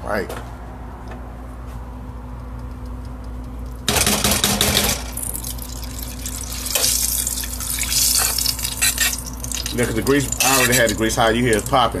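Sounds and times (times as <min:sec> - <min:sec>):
grease sizzling and popping: 0:05.0 - 0:12.0.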